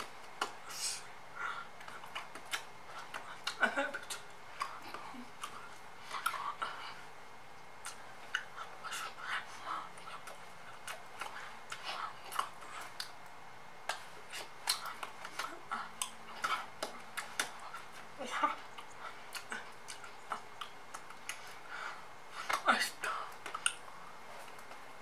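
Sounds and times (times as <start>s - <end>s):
lip and tongue clicks: 1.8s - 6.8s, 7.8s - 9.4s, 10.0s - 13.3s, 13.9s - 18.0s, 18.6s - 23.9s
woman whispering: 4.6s - 7.1s, 8.4s - 10.4s, 11.3s - 12.9s, 14.3s - 20.6s, 22.4s - 23.9s.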